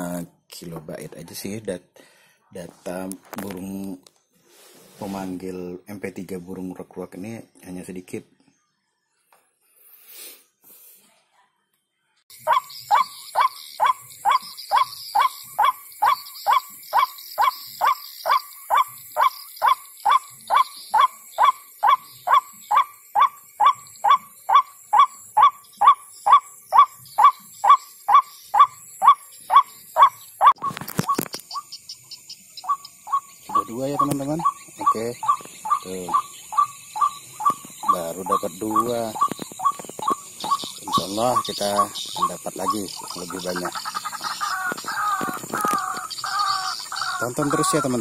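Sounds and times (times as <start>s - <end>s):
bird calls through loudspeaker: 12.4s - 31.7s, 32.6s - 48.0s.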